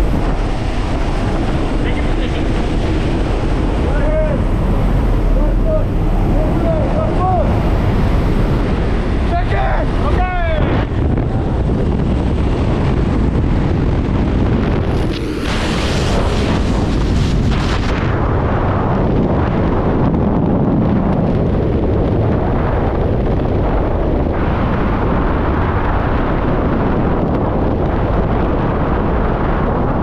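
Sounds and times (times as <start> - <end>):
heavy wind noise on microphone: 0.0 - 30.0.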